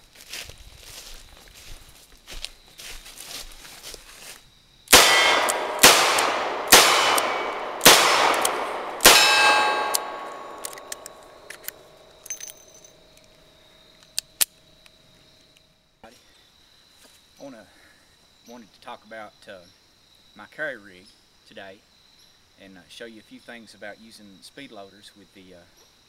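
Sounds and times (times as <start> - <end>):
revolver shots: 4.9 - 11.5
metallic ringing: 4.9 - 13.0
revolver cylinder clicks: 5.0 - 12.6.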